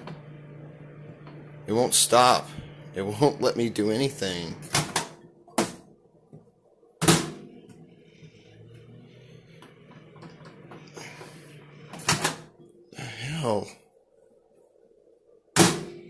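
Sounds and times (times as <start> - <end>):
microwave oven humming: 0.0 - 16.0
microwave door thunk: 15.6 - 16.0.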